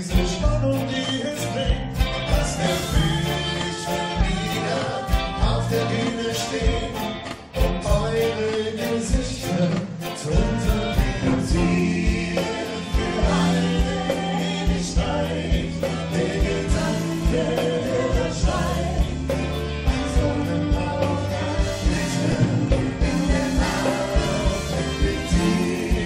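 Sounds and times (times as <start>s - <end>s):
person singing: 0.0s - 7.1s
live band playing: 0.0s - 26.0s.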